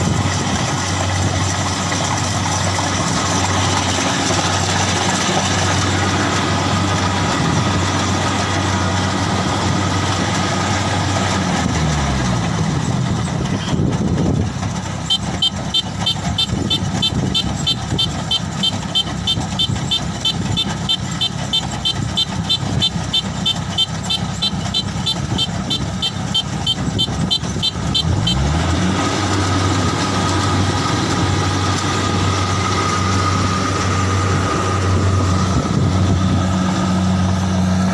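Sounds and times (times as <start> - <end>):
harvester engine running: 0.0 - 37.9
engine revving: 15.0 - 37.9
high-pitched warning beeper: 15.1 - 28.5.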